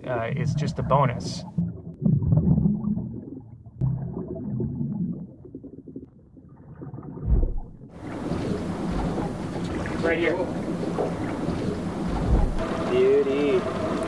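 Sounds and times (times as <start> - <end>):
muffled underwater rumbling: 0.0 - 14.0
wind and open water hiss: 8.0 - 14.0
heavy low thump: 8.8 - 9.9, 12.0 - 12.6.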